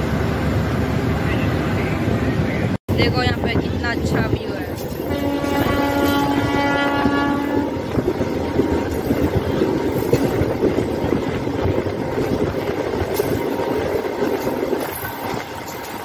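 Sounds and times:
train horn: 4.9s - 8.0s
train wheels clattering on rails: 7.7s - 16.0s.

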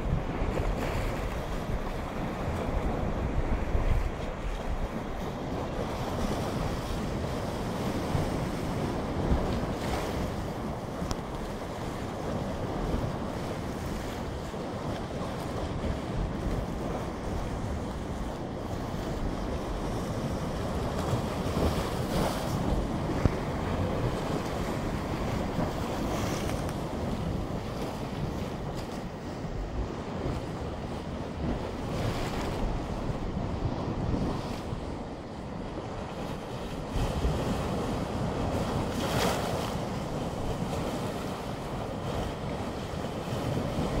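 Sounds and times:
small waves splashing on concrete: 0.0s - 44.0s
wind rumbling on microphone: 0.0s - 44.0s.

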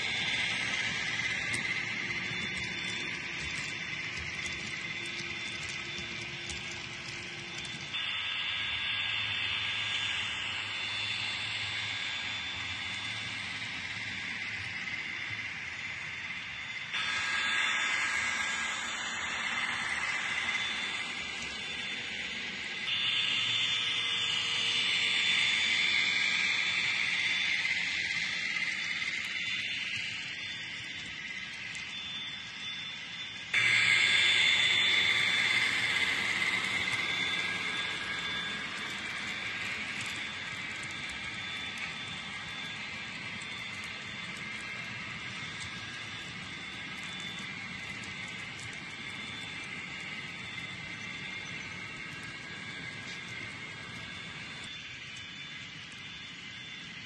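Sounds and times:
wheels clicking on track: 0.0s - 8.0s, 12.5s - 57.0s
model train high-pitched hiss: 0.0s - 57.0s
model train cars rolling hiss: 33.0s - 47.8s.

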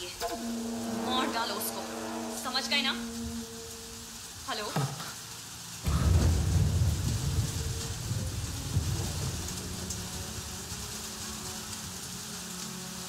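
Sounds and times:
low held drone: 0.0s - 4.5s, 5.8s - 13.0s
steady hiss: 0.0s - 13.0s
deep rumbling boom: 5.8s - 10.9s.

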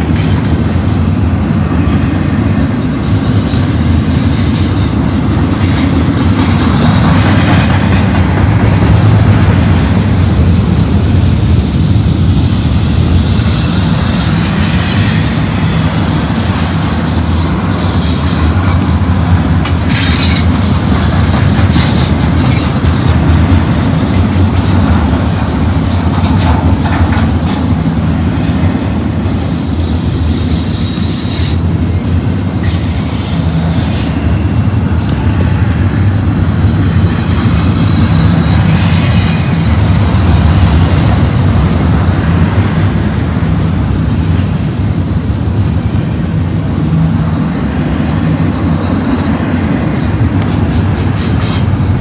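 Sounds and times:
train wheels rumbling on rails: 0.0s - 52.0s
high wheel squeal: 2.5s - 10.6s, 12.2s - 23.2s, 29.2s - 41.5s.

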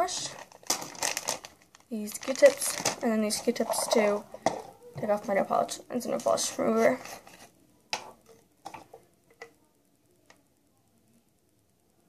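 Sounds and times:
small bottles clicking and tapping: 0.0s - 5.2s.

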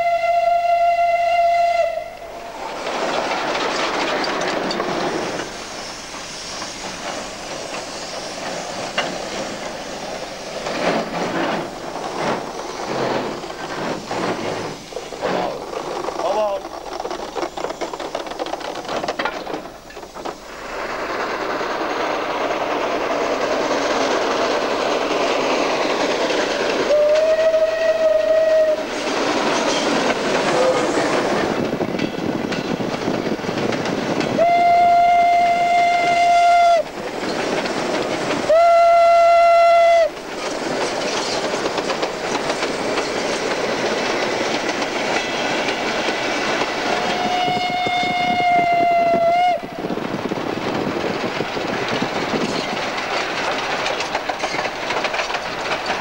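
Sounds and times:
locomotive whistle blasts: 0.0s - 2.6s, 26.9s - 28.8s, 34.4s - 36.9s, 38.5s - 40.1s, 47.0s - 49.7s
steam locomotive running: 0.0s - 56.0s.

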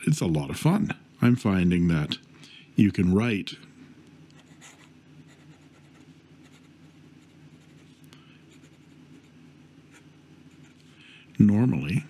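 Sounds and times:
pen nib scratching paper: 4.4s - 10.9s.

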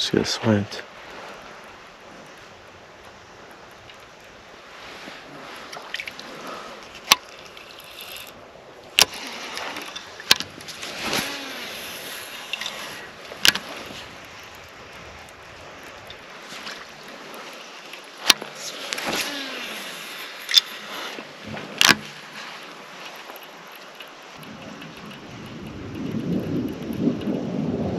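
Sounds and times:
reel clicks: 1.0s - 27.9s
fishing reel spool whirring: 5.8s - 27.9s.

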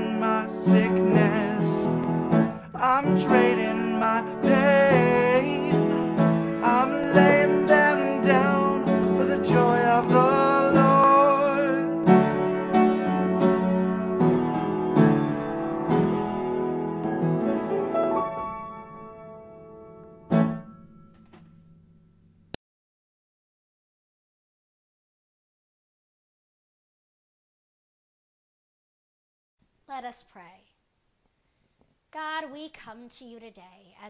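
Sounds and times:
man singing: 0.0s - 12.4s
keyboard chords: 0.0s - 22.5s.

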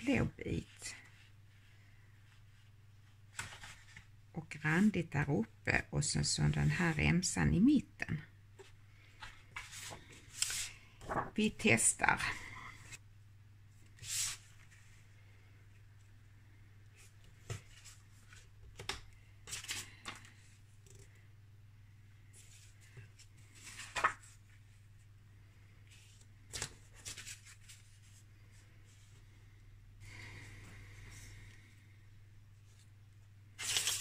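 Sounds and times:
paper rustling: 9.2s - 11.4s, 22.4s - 24.6s, 25.9s - 28.3s, 33.6s - 34.0s.

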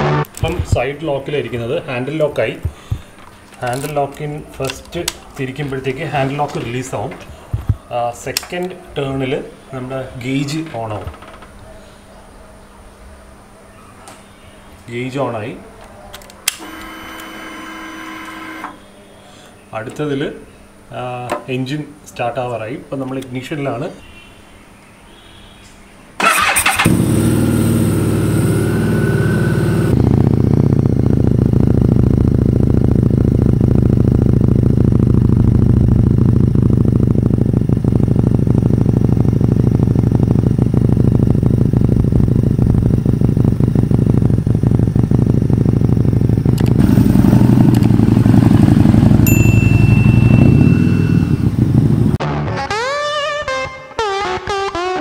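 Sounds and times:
electric starter cranking: 16.5s - 18.8s, 26.2s - 31.6s, 32.6s - 49.1s
motorcycle engine idling: 26.2s - 52.2s.

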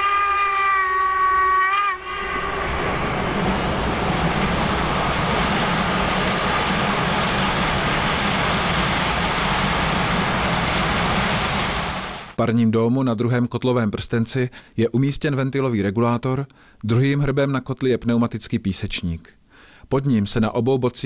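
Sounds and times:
steam locomotive whistle: 0.0s - 4.2s
train running past: 1.4s - 12.4s.

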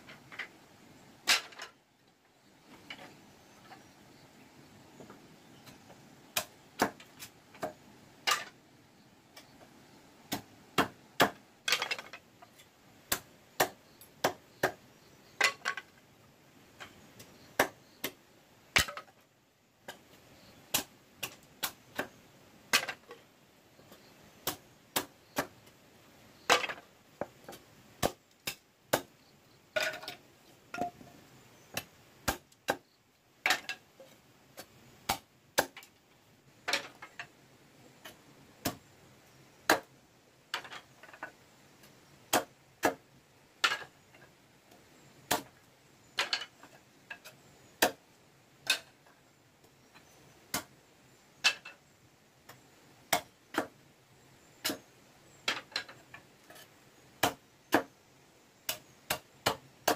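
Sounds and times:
machete chopping bamboo: 6.3s - 8.5s, 10.3s - 12.1s, 13.1s - 14.8s, 17.6s - 18.2s, 18.8s - 19.1s, 20.7s - 23.0s, 24.4s - 25.6s, 27.4s - 29.2s, 31.7s - 32.8s, 34.6s - 35.9s, 38.0s - 38.8s, 39.7s - 39.9s, 42.3s - 43.0s, 45.3s - 45.6s, 47.2s - 48.0s, 50.5s - 50.7s, 52.5s - 53.8s, 54.6s - 54.8s, 57.2s - 57.9s, 58.7s - 59.9s.

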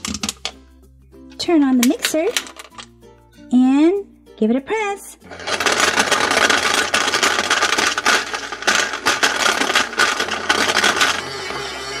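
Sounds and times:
toy pieces rattling in plastic jar: 1.8s - 3.0s, 5.3s - 11.4s
toy blender motor: 5.3s - 12.0s.

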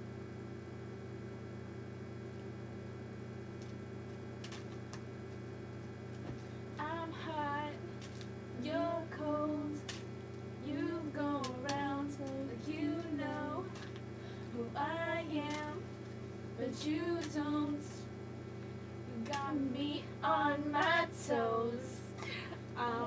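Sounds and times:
young girls singing: 10.6s - 13.8s, 14.6s - 15.8s, 16.6s - 18.0s, 19.2s - 22.2s, 22.8s - 23.0s.

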